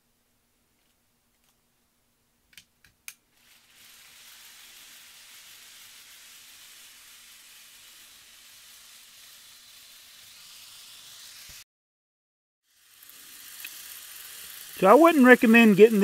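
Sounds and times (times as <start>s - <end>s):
model train hissing on rails: 3.4s - 11.6s, 12.7s - 16.0s.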